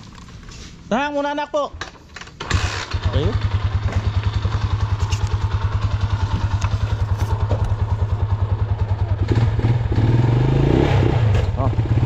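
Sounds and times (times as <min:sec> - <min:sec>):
motorcycle engine idling: 0:02.5 - 0:10.0.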